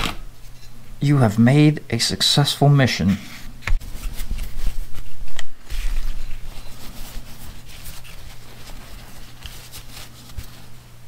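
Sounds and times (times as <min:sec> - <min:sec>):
electrical hum: 0:00.0 - 0:11.0
hands rubbing in a cloth rag: 0:03.2 - 0:10.9.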